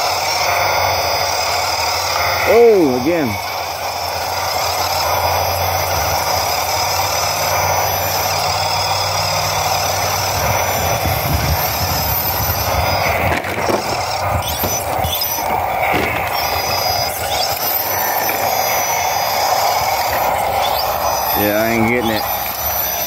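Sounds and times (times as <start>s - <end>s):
small electric motors whining: 0.0s - 23.0s
knocks and scrapes on rock: 13.0s - 18.5s.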